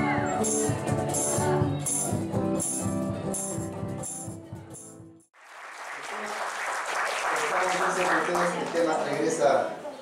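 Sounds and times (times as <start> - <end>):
band music with shaker percussion: 0.0 - 5.1
audience hubbub in a hall: 5.4 - 10.0.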